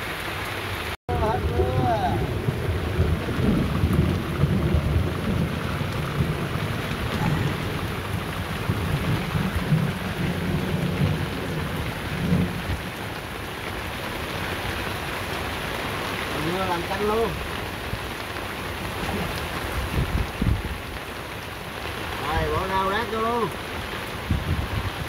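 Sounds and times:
heavy rain pouring: 0:00.0 - 0:25.0
low rumbling: 0:01.1 - 0:13.0.

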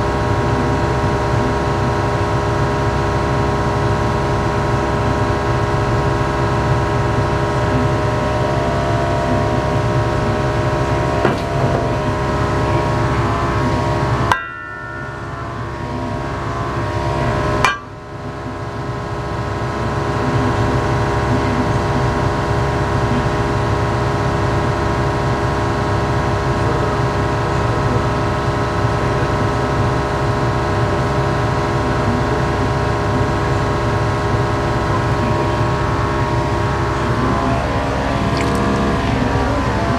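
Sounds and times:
gas burner roaring: 0:00.0 - 0:29.4
steady tonal hum: 0:02.0 - 0:25.0, 0:32.0 - 0:39.9
sharp knocks: 0:14.3 - 0:15.6, 0:17.6 - 0:18.0.

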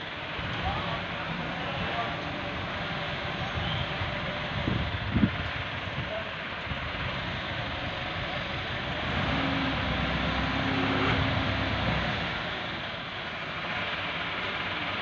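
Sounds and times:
tractor diesel engine running: 0:00.0 - 0:15.0
hydraulic whine: 0:07.1 - 0:13.0.

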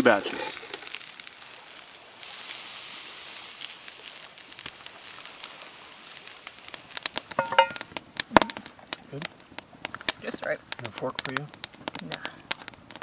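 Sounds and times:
frying pan sizzling: 0:00.0 - 0:09.3
campfire crackling and popping: 0:00.0 - 0:13.0.

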